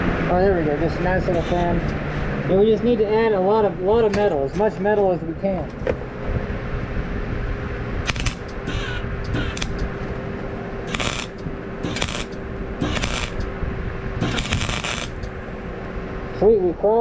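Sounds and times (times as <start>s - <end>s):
arc welder crackling sizzles: 8.0s - 9.8s, 10.9s - 13.5s, 14.2s - 15.4s
small fan humming: 8.0s - 16.0s.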